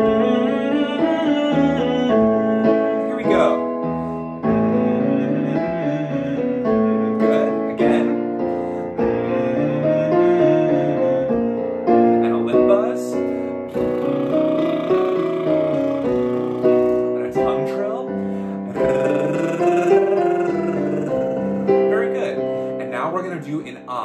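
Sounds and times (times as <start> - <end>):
keyboard piano chords: 0.0 - 24.0
man humming: 13.7 - 22.6.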